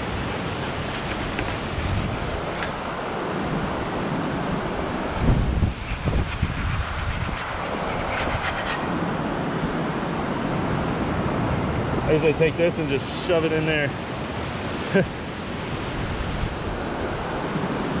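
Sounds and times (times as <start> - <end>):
wind on microphone: 0.0 - 12.7, 14.3 - 18.0
wax rubbed on surfboard: 0.3 - 2.7, 5.7 - 8.9.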